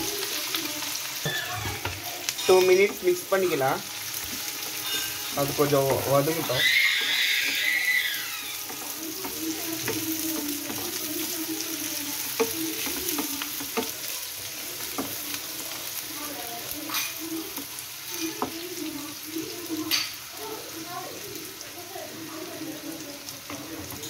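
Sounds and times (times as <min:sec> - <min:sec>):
vegetables sizzling in oil: 0:00.0 - 0:24.0
spatula scraping a pan: 0:01.2 - 0:18.8.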